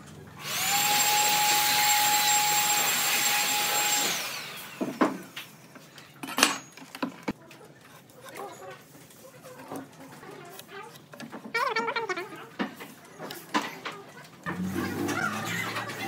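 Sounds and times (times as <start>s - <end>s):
power tool whining: 0.4s - 5.7s.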